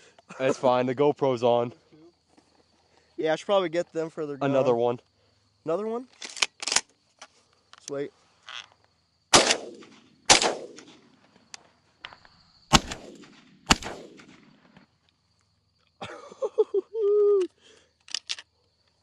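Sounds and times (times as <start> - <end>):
shotgun shots: 9.3 - 11.2, 12.7 - 14.7.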